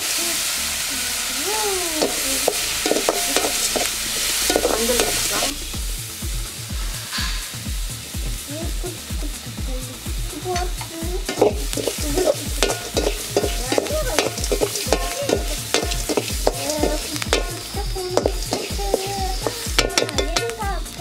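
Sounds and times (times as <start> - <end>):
vegetables sizzling in hot oil: 0.0 - 21.0
background music with steady beat: 0.4 - 21.0
stirring tool scraping pan: 2.0 - 5.5, 11.2 - 20.7.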